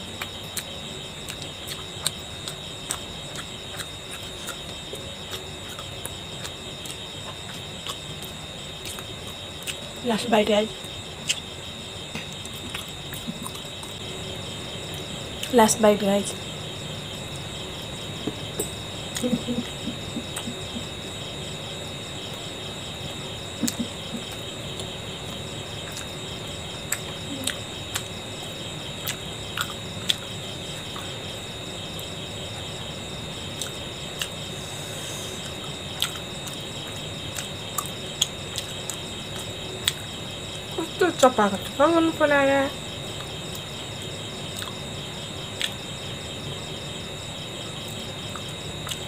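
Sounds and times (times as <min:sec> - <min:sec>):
crickets trilling: 0:00.0 - 0:49.0
person chewing food: 0:00.2 - 0:09.8, 0:12.2 - 0:14.0, 0:23.6 - 0:26.2, 0:29.0 - 0:30.2, 0:35.4 - 0:36.6, 0:37.3 - 0:40.0, 0:44.6 - 0:44.8.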